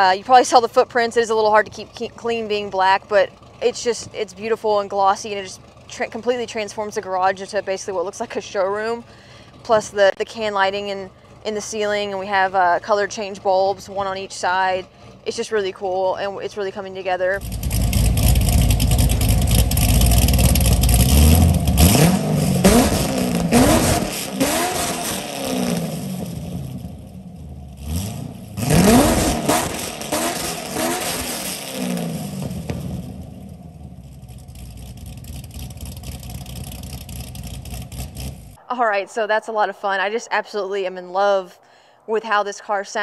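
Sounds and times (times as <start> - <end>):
car engine idling: 0.0 - 40.0
car engine revving: 17.4 - 38.7.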